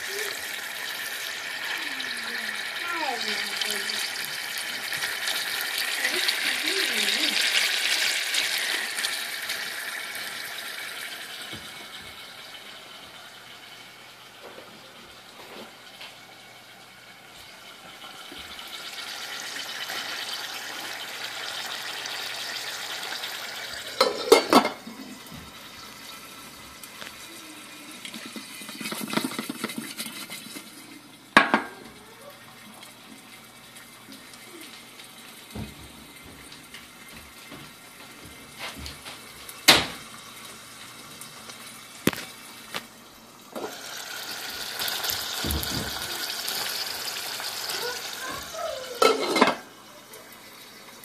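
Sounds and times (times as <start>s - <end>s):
saucepan simmering hiss: 0.0s - 51.0s
metal pan and lid clanking: 24.0s - 24.9s, 49.0s - 49.7s.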